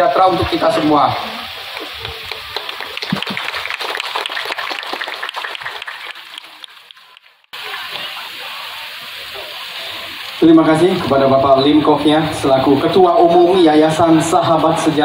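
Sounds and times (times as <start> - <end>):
audience applauding: 1.5 - 8.1.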